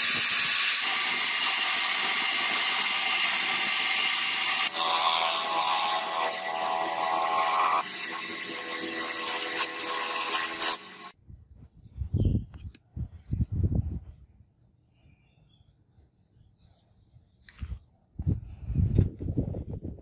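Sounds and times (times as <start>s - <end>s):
sandpaper on turning wood: 7.3s - 11.1s.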